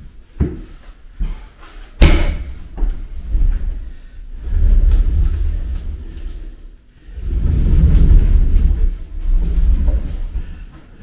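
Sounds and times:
float pushed across mat rumbling: 2.0s - 10.7s.

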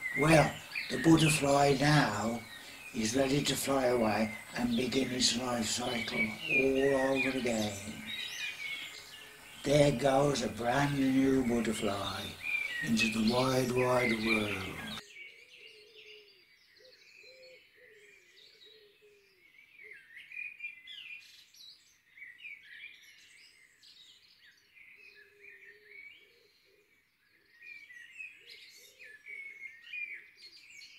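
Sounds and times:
low wavering bird call: 0.0s - 15.0s
small birds chirping: 0.0s - 30.9s.

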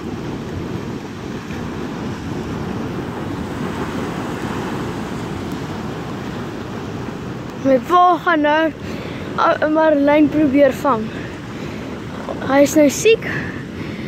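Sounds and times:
surf breaking on rocks: 0.0s - 13.6s
wind rumbling on microphone: 0.0s - 14.0s.

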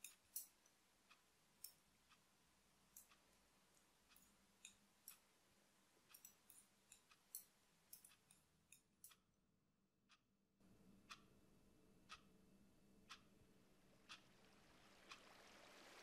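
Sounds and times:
knitting needles clicking: 0.0s - 2.2s, 2.9s - 5.2s, 6.1s - 9.3s.

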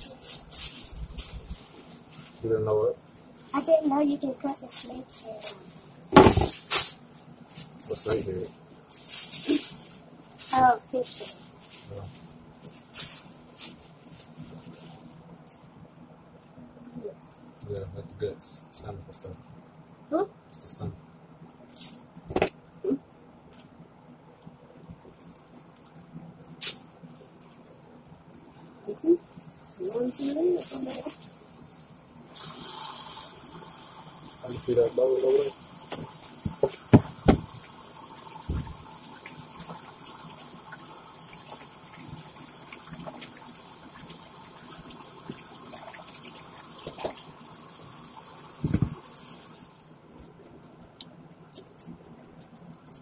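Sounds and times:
tap running into a sink: 35.9s - 37.8s.

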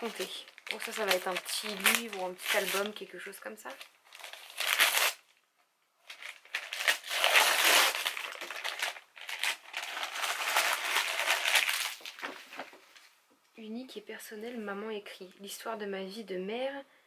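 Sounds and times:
wrapping paper crinkling and tearing: 0.0s - 5.3s, 6.0s - 13.0s.

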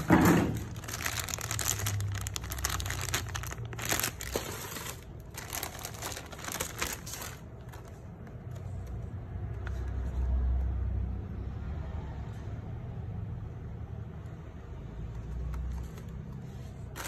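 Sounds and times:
plastic bag crinkling: 0.0s - 8.9s, 16.8s - 17.0s.

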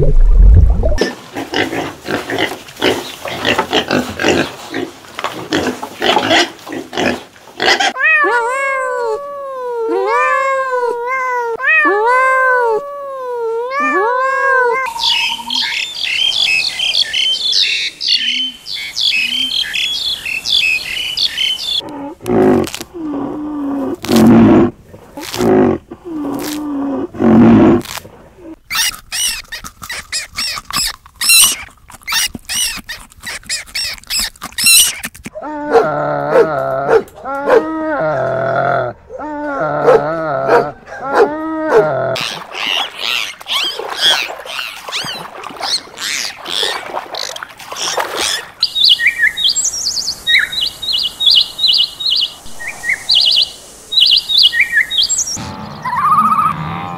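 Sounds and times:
lower-pitched repeated calls: 14.4s - 21.8s, 48.3s - 56.9s
high squeaks: 28.7s - 35.2s
rapid high chirping: 48.6s - 56.6s.

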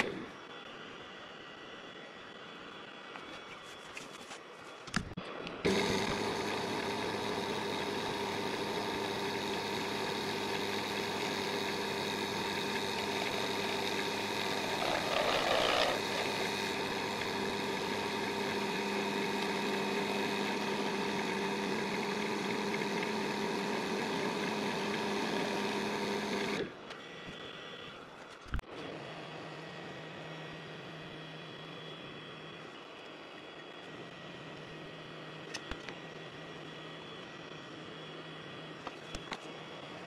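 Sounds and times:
lathe motor whine: 0.0s - 40.0s
turning tool cutting: 5.6s - 27.4s.

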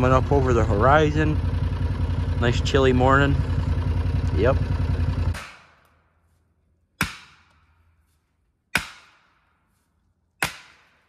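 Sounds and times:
sledgehammer striking fence post: 5.2s - 6.1s, 7.0s - 7.9s, 8.7s - 9.8s, 10.4s - 11.0s.

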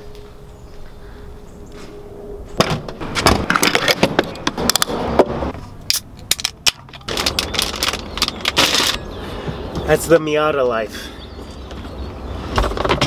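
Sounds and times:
plastic crinkling and clicking: 6.2s - 9.0s.

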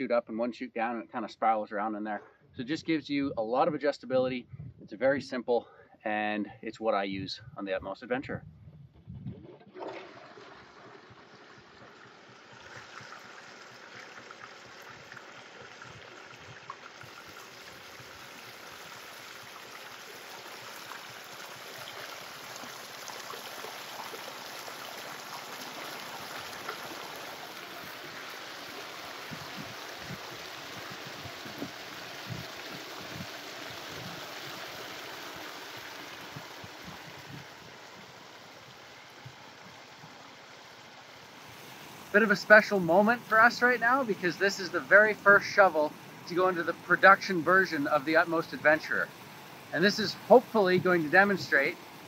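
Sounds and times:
water churning in hopper: 9.4s - 52.0s
water pouring off sluice: 9.6s - 39.5s.

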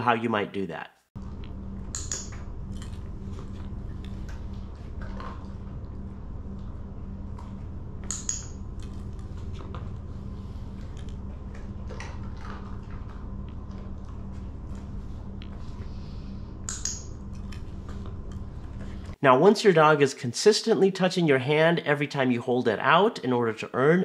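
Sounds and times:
steady low hum: 1.2s - 24.0s.

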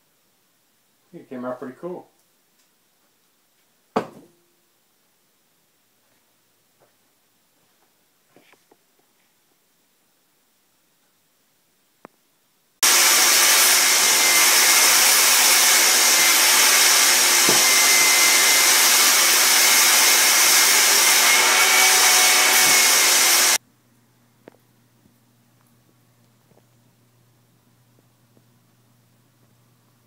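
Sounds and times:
vacuum cleaner running: 12.8s - 23.6s.

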